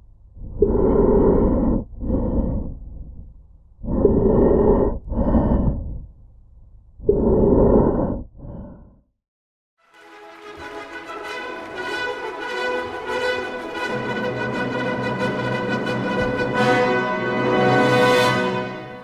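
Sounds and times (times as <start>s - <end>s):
heavy breathing through gas mask: 0.4s - 6.1s, 7.1s - 9.0s.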